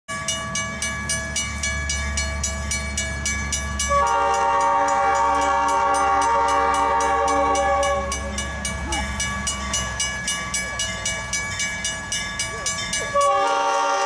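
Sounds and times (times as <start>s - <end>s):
crossing warning bell ringing: 0.1s - 14.0s
locomotive horn chord: 3.8s - 8.6s, 13.1s - 14.0s.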